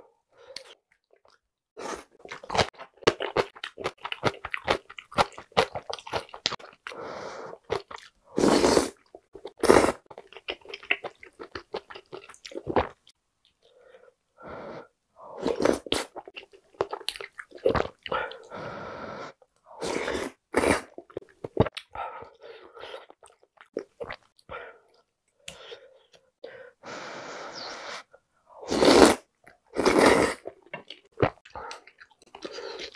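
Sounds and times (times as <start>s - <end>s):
wet chewing: 2.1s - 8.2s
slurping broth and noodles: 6.6s - 10.1s, 17.6s - 21.6s, 27.2s - 32.9s.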